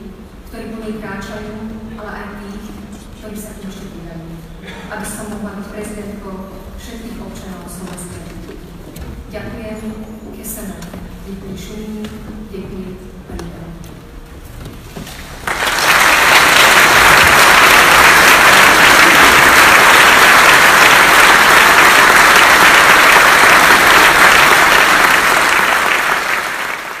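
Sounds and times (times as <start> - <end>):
audience applauding: 15.4 - 27.0.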